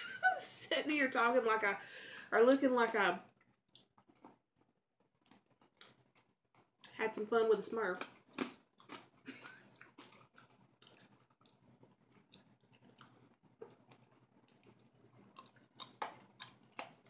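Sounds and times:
person crunching lollipop: 3.4s - 7.0s, 8.0s - 17.0s.

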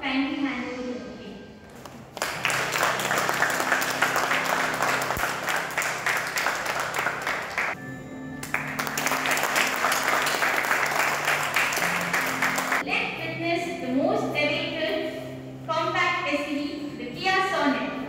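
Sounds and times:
background music: 0.0s - 18.0s
crowd applauding: 2.1s - 7.8s, 8.4s - 12.8s.

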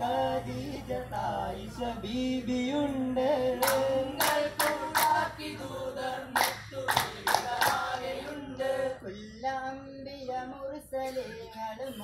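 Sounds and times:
group of men singing: 0.0s - 12.0s
sharp hand claps: 3.6s - 5.2s, 6.4s - 7.9s.

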